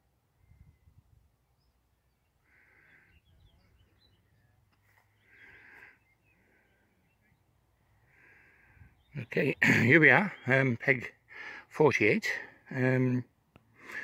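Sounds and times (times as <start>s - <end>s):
low wind rumble: 0.0s - 1.7s
small birds chirping softly: 0.0s - 14.0s
bird calls: 0.4s - 11.6s.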